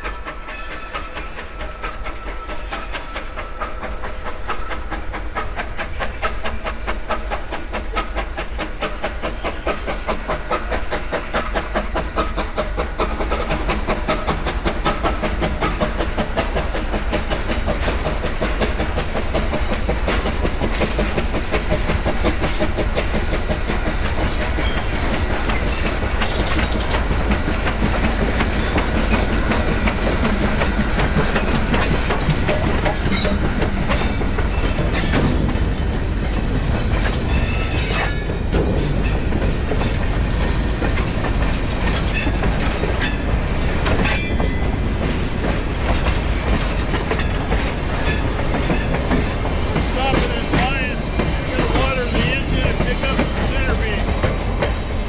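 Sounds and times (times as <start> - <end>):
freight train rolling past: 0.0 - 55.0
wheels clicking over rail joints: 9.4 - 55.0
thin high squeal: 11.4 - 45.2.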